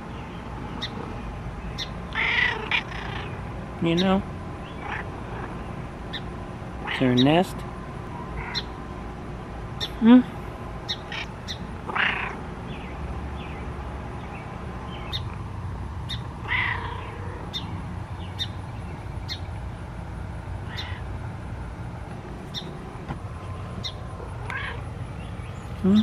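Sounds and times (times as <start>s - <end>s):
bird squawks: 1.8s - 3.4s, 8.4s - 8.7s, 10.9s - 12.4s, 20.7s - 21.0s
high bird chirps: 16.0s - 16.3s, 17.0s - 19.5s.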